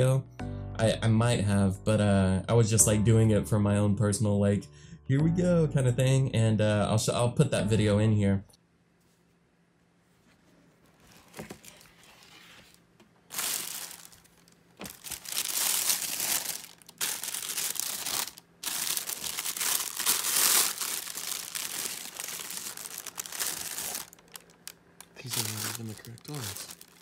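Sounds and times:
tissue paper crinkling: 10.9s - 27.0s.

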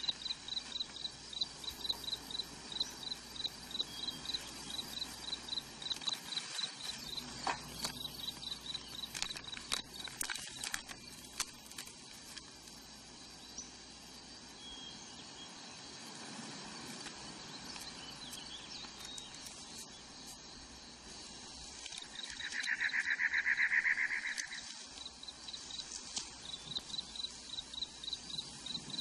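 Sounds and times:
crickets chirping: 0.0s - 29.0s
paper handling: 5.9s - 12.5s
plastic bag crinkling: 5.9s - 12.5s.

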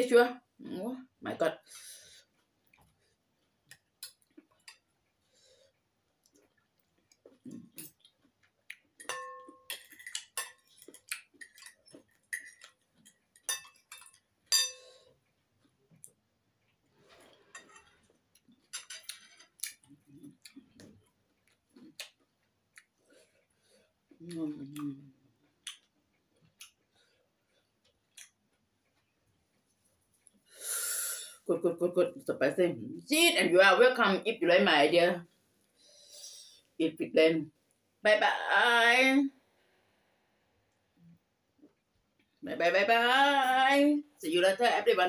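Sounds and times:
soft chewing: 1.6s - 30.6s, 39.6s - 42.4s
cutlery scraping ceramic bowl: 9.0s - 15.0s, 17.4s - 18.1s, 18.7s - 19.6s.

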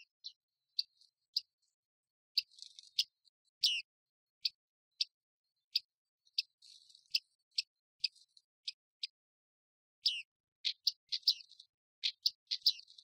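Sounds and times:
faint bird twittering: 0.0s - 9.2s, 9.9s - 13.0s.

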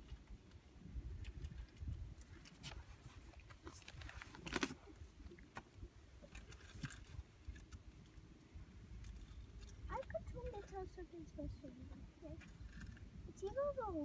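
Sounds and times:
wind buffeting microphone: 0.0s - 3.6s.

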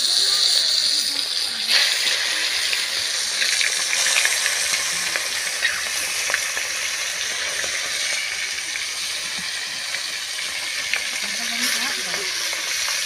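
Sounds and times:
fish frying in hot oil: 0.0s - 13.0s
small crackling pops: 1.6s - 8.6s.

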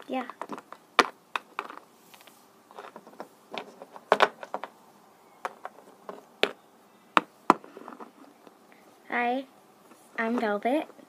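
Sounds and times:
plastic toys tapping: 0.1s - 1.8s, 2.7s - 4.7s, 5.4s - 6.6s.

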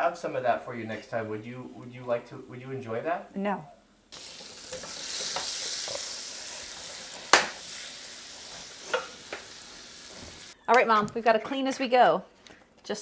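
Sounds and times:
butter sizzling in frying pan: 4.0s - 10.6s.

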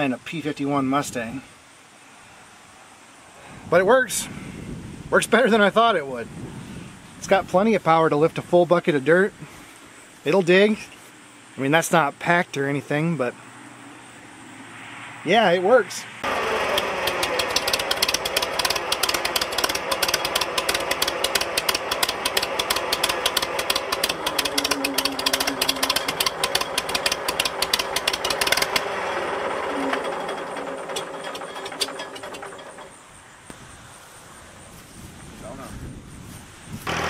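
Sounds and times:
crawler loader engine clattering: 16.2s - 33.2s.

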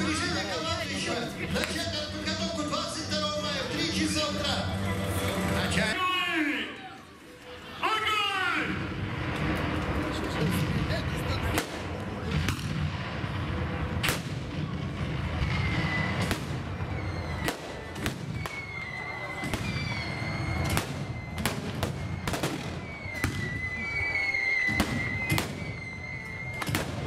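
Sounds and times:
low rumble: 8.8s - 18.5s
pyrotechnic bangs and blasts: 8.8s - 27.0s.

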